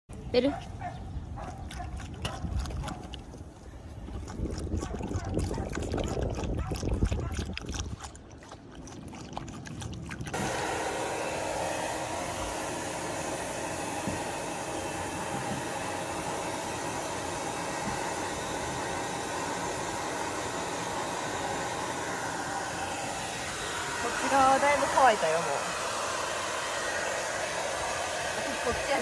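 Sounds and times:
dog lapping water: 1.3 - 10.6
hair dryer blowing: 10.3 - 29.0.

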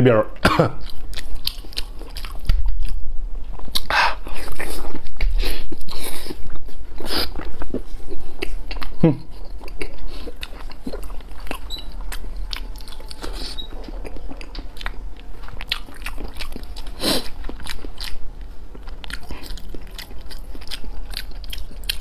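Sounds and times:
wet chewing clicks: 18.8 - 22.0.

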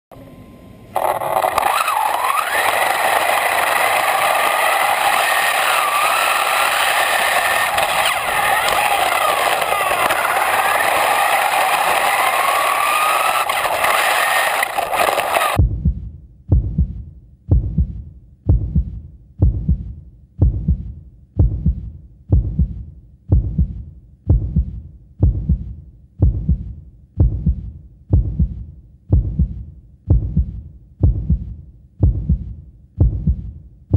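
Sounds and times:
toy car motor whining: 1.0 - 15.6
steady low thuds: 15.6 - 33.9.

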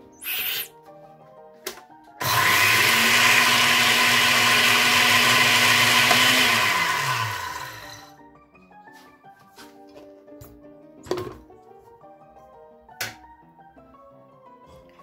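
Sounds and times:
blender grinding seeds: 0.2 - 0.7, 2.2 - 8.2.

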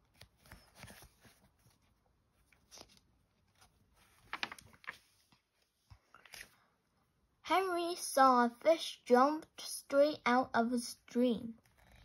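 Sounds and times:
paper page turning: 0.0 - 6.7.

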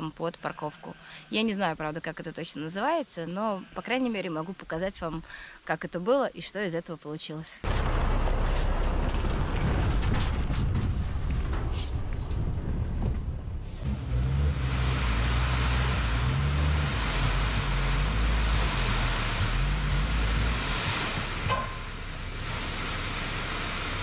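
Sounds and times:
diesel engine revving: 7.7 - 12.2, 13.8 - 24.0
soil sliding out: 7.7 - 12.8
sharp knock: 21.5 - 21.9.

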